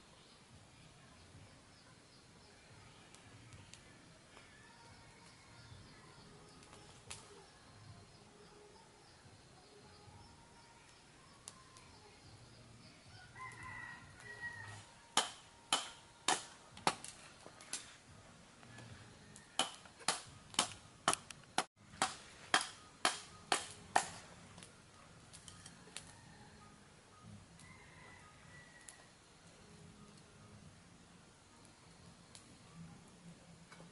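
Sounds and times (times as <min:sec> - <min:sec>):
rooster crowing: 0:13.1 - 0:15.0, 0:27.6 - 0:29.2.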